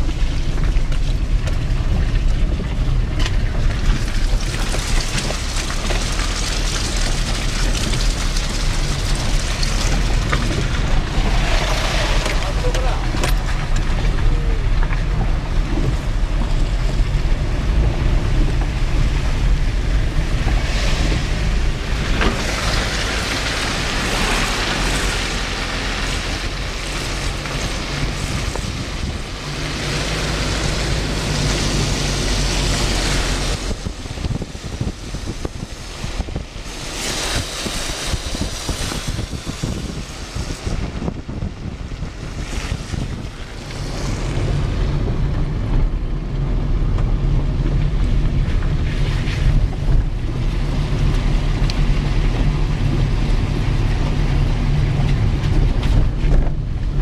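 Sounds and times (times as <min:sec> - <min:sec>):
car driving on wet road: 0:00.0 - 0:57.0
wind buffeting microphone: 0:00.0 - 0:57.0.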